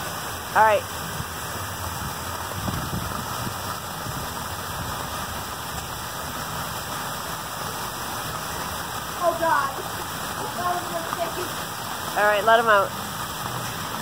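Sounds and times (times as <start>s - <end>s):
water splashing onto stone: 0.0s - 14.0s.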